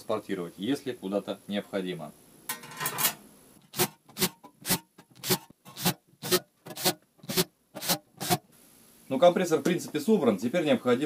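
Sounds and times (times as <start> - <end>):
sheet metal scraping: 2.5 - 3.2.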